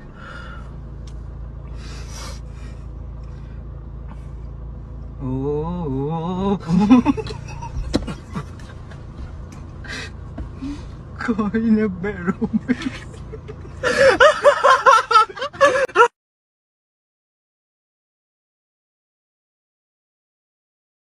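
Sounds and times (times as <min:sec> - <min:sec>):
car engine and road noise: 0:00.0 - 0:16.1.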